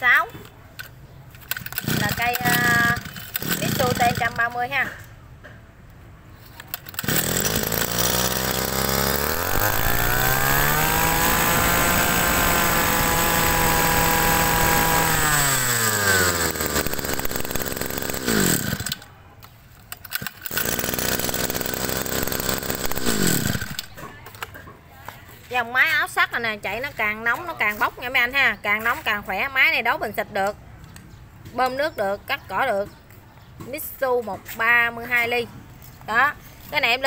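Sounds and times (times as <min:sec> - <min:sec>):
brush cutter engine idling and revving: 0:01.4 - 0:05.0, 0:06.6 - 0:19.2, 0:20.1 - 0:24.5.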